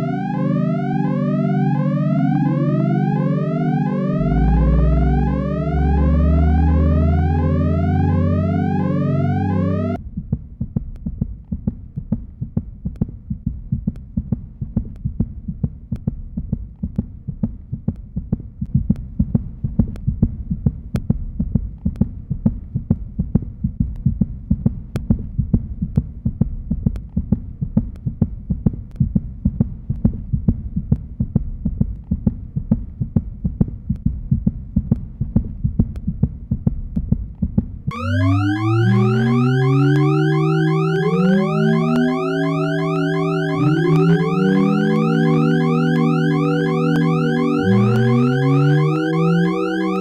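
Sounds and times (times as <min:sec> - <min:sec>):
low throbbing electronic hum: 0:00.0 - 0:10.0, 0:37.9 - 0:50.0.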